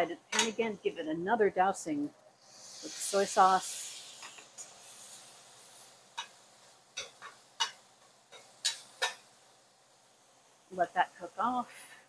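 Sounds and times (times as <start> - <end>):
meat sizzling: 2.3 - 12.0.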